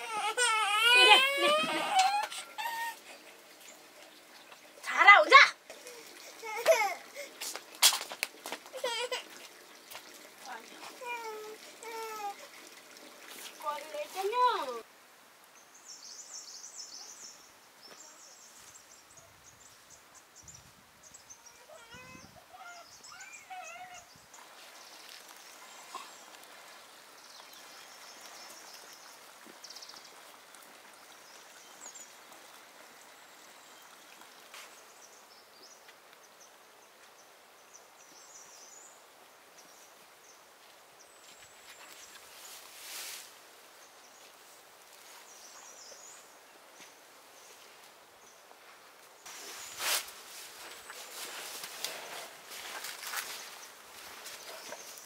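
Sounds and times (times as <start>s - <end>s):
small birds chirping: 15.6s - 39.0s, 50.6s - 55.0s
rustling swish: 49.3s - 53.5s.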